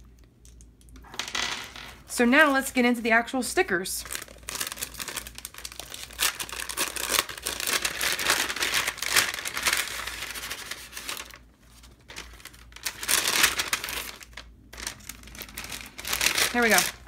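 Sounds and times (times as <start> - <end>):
packaging bag crinkling: 4.0 - 17.0.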